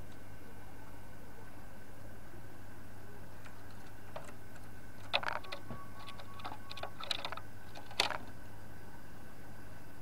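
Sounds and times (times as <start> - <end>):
dove clicking and tapping on perch: 3.4 - 8.4.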